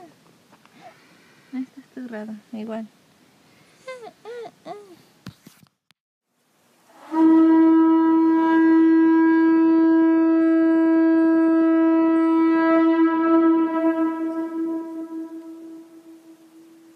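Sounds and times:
conch shell trumpet note: 0:06.9 - 0:16.9.

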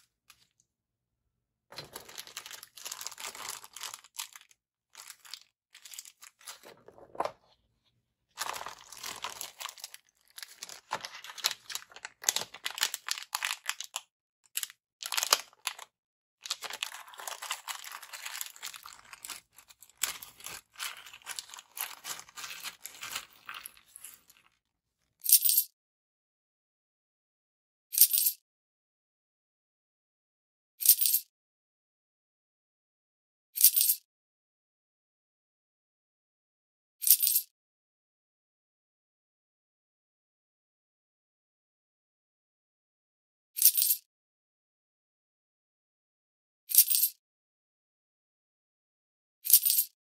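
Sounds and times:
plastic packaging crinkling: 0:01.8 - 0:07.6, 0:08.4 - 0:14.0, 0:14.6 - 0:24.6.

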